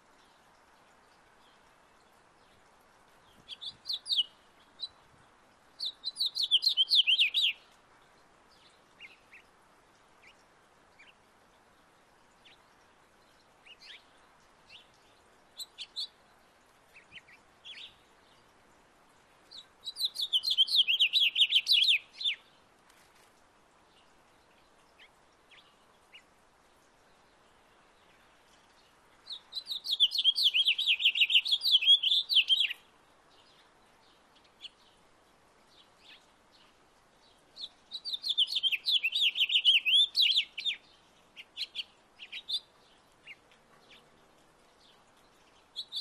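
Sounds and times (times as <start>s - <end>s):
finch warbling song: 38.0s - 40.8s.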